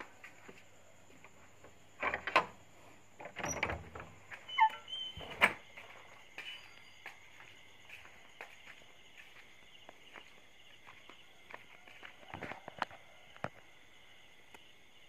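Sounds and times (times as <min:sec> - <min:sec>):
crickets chirping: 0:00.0 - 0:15.0
door creaking: 0:02.0 - 0:02.6, 0:03.2 - 0:05.7.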